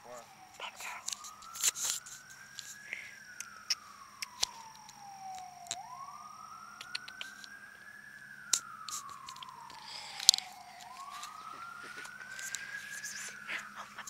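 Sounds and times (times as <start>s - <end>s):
siren wailing: 0.0s - 14.0s
sharp clicks: 6.8s - 7.6s.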